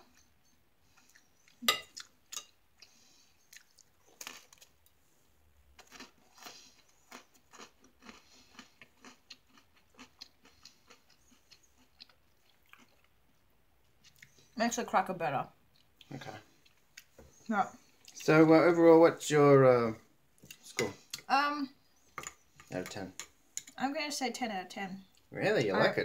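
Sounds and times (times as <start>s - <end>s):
chewing crunchy cracker: 3.5s - 4.8s, 5.8s - 14.4s.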